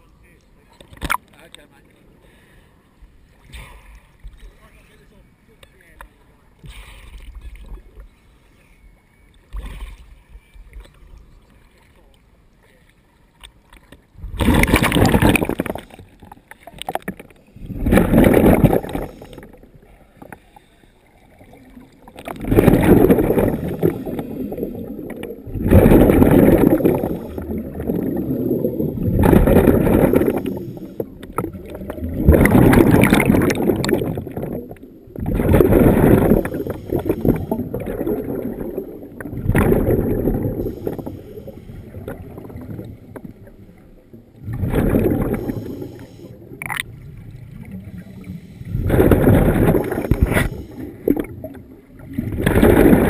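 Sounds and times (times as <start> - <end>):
rush of bubbles: 14.2 - 20.3, 21.2 - 43.8, 44.4 - 53.0
diver breathing through regulator: 17.6 - 19.6, 22.6 - 24.9, 29.4 - 31.1, 35.4 - 37.8, 40.5 - 42.2, 45.1 - 46.4, 48.0 - 51.2.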